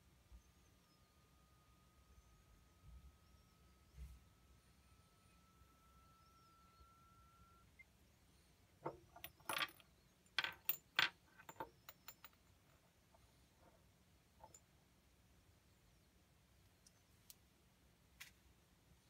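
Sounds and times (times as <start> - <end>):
faint rising sine test tone: 0.3 - 7.9
earbuds clinking against glass bottles: 8.8 - 12.8.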